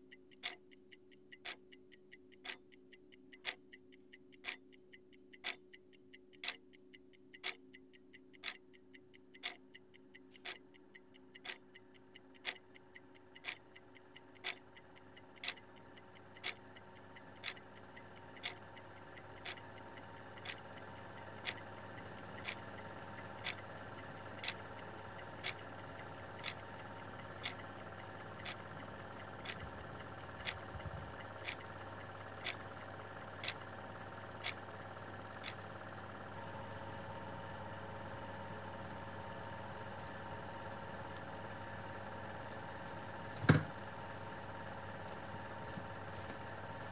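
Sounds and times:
clock ticking: 0:00.0 - 0:36.2.

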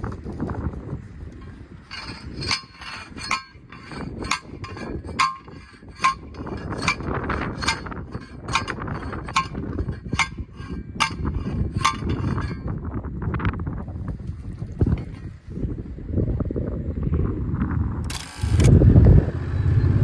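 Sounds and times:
wind rumble on microphone: 0:00.0 - 0:20.0
post driver clanking on steel post: 0:01.9 - 0:12.8.

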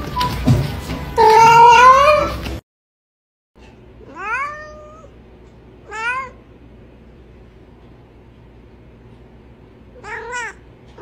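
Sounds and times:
cats meowing: 0:01.2 - 0:02.4, 0:04.1 - 0:05.1, 0:05.9 - 0:06.4, 0:10.0 - 0:10.6.

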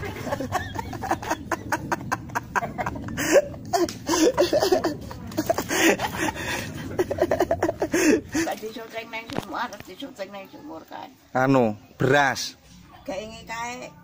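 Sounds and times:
man laughing: 0:00.0 - 0:08.5
elderly woman laughing: 0:00.0 - 0:08.6.

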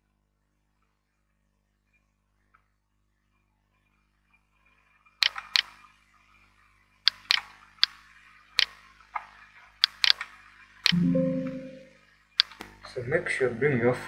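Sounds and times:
sharp clicks and taps: 0:10.9 - 0:11.6, 0:12.4 - 0:12.7.

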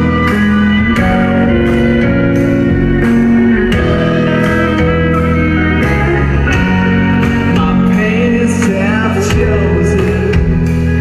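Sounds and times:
live rock band playing: 0:00.0 - 0:11.0
pitch-bending voice or slide guitar: 0:00.0 - 0:11.0.

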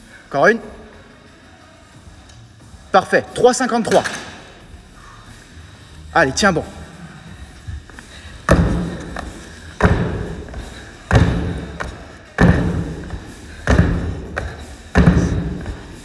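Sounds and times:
feet landing hard on box: 0:08.4 - 0:16.0.

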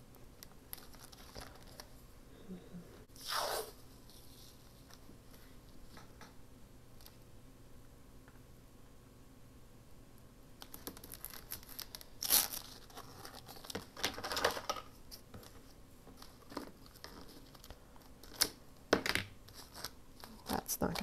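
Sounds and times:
paper rustling and tearing: 0:10.7 - 0:14.8.

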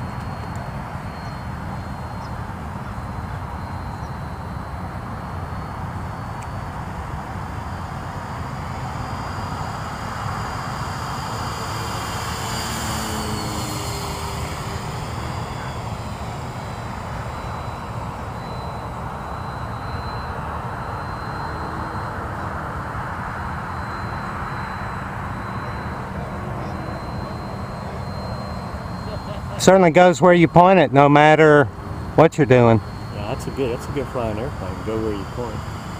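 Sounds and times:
model airplane engine droning: 0:00.0 - 0:35.9.

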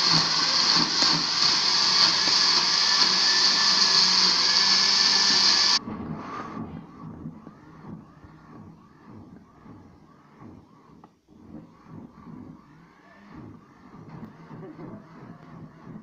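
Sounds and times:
blender running: 0:00.0 - 0:05.8.

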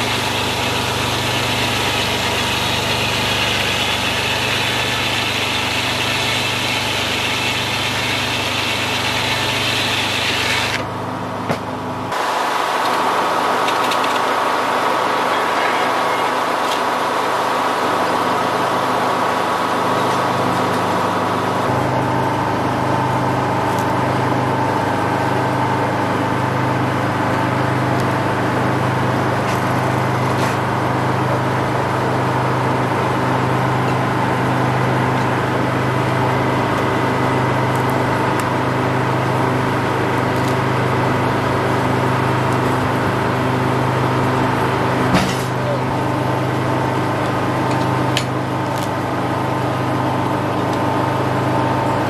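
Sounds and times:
diesel engine running sawmill: 0:00.0 - 0:52.0.

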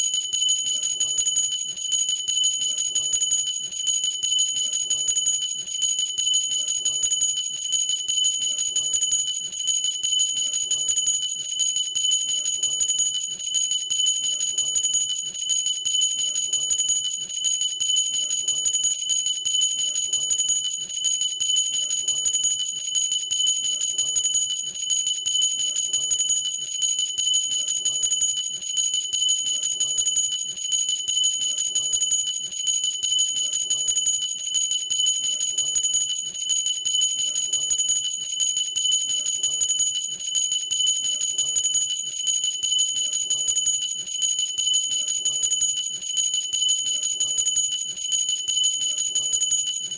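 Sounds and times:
glass hand bell ringing: 0:48.5 - 0:49.9.

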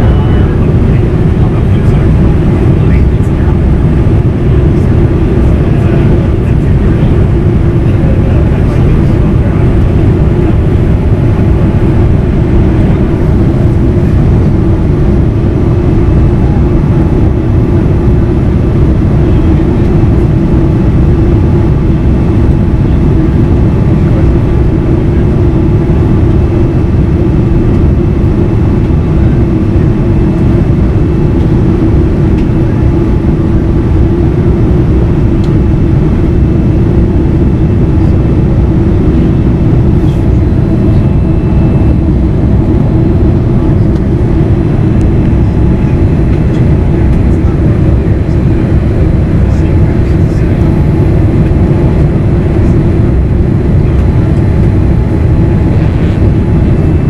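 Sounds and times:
airplane cabin roar: 0:00.0 - 0:57.0
low hum: 0:00.0 - 0:57.0.

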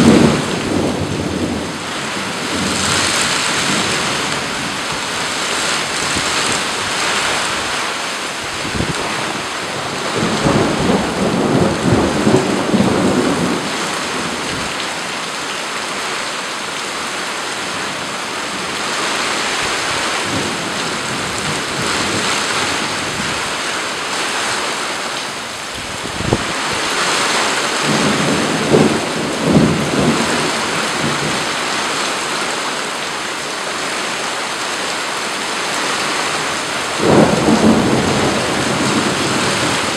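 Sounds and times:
thunder rumbling: 0:00.0 - 0:07.8, 0:08.5 - 0:14.8, 0:25.9 - 0:31.7, 0:36.6 - 0:39.9
steady rain: 0:00.0 - 0:39.9.

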